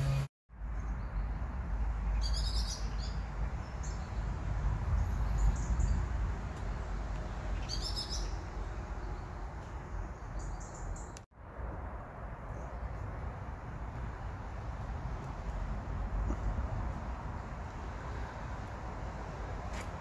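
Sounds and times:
birds chirping: 5.0 - 11.2.

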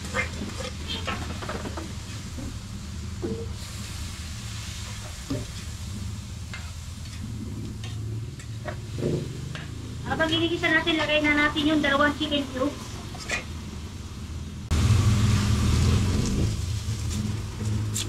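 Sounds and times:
metal spatula scraping wok: 0.0 - 2.3, 4.6 - 11.8, 12.8 - 13.6
chicken sizzling in hot oil: 0.0 - 10.1, 14.7 - 18.0.

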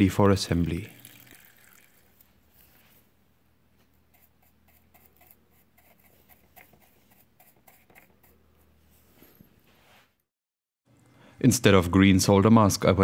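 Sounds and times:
bristle brush scrubbing: 4.1 - 9.2.

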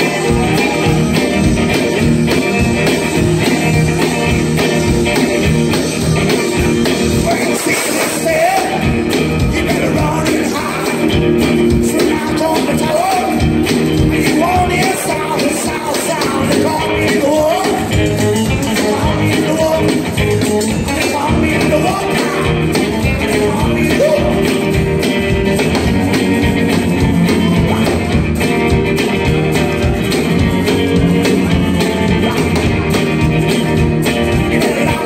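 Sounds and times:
man singing: 0.0 - 2.0, 7.0 - 28.8, 30.4 - 33.3, 34.0 - 35.0
rockabilly band playing: 0.0 - 35.0.

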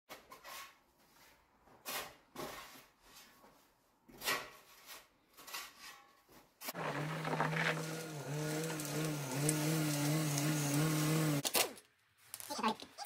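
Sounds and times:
snow shovel scraping snow: 6.7 - 11.4.

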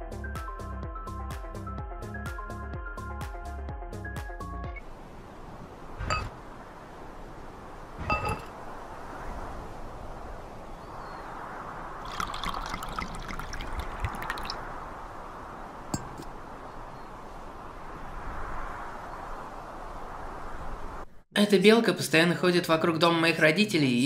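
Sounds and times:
steady background hiss: 4.8 - 23.2
wine glass clinking on stone: 8.1 - 8.5
wine pouring and splashing: 12.0 - 14.7.

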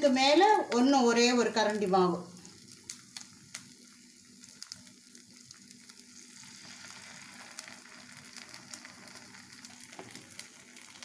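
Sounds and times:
batter sizzling in oil: 0.0 - 11.0.

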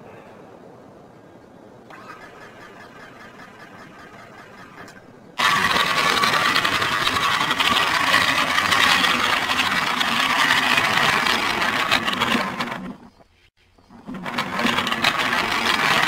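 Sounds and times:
toy train motor whirring: 4.8 - 13.1, 13.9 - 16.0.

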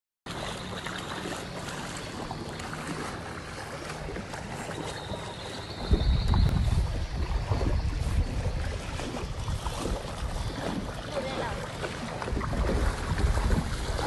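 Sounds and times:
floodwater rushing: 0.3 - 14.0
wind buffeting microphone: 2.2 - 14.0
wind rushing: 5.9 - 10.6.

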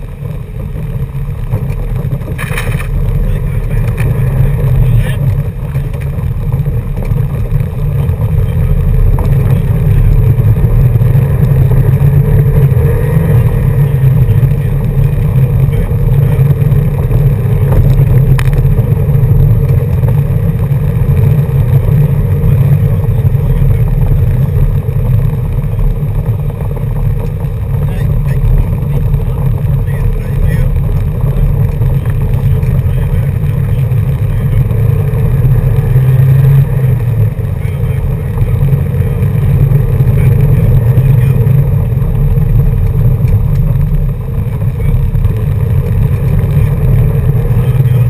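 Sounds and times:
car driving on gravel road: 0.0 - 48.0.

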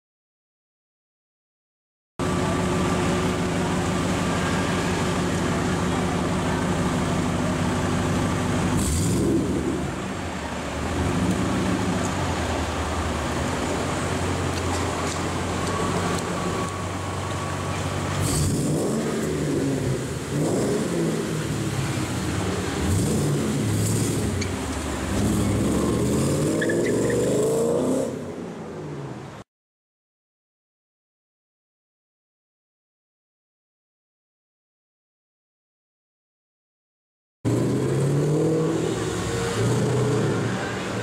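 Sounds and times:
car engine idling and revving: 2.2 - 29.4, 37.5 - 41.0.

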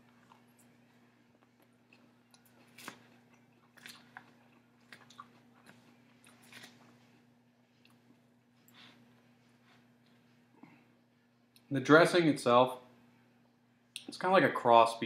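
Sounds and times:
man chewing salad: 0.0 - 10.6.

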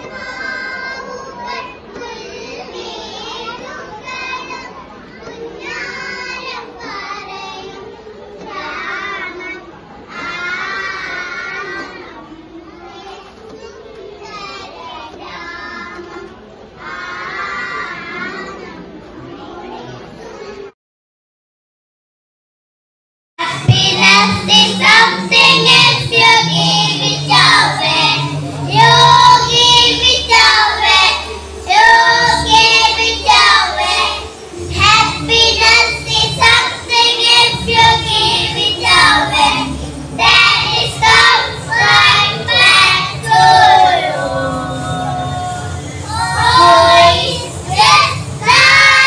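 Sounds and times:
boys singing into microphones: 23.4 - 49.0.

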